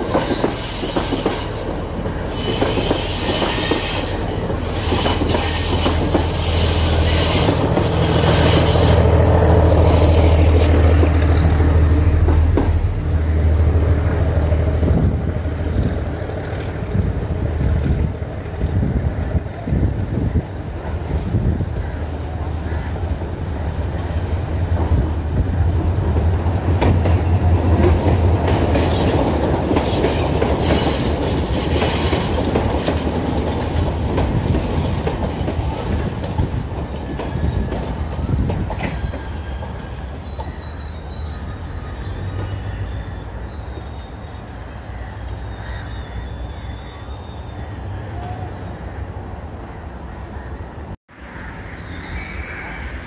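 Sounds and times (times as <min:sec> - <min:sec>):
train wheel clatter: 0:00.0 - 0:12.9, 0:24.8 - 0:40.7
heavy low rumble of train: 0:00.0 - 0:53.0
high wheel squeal: 0:00.1 - 0:11.9, 0:37.0 - 0:49.0.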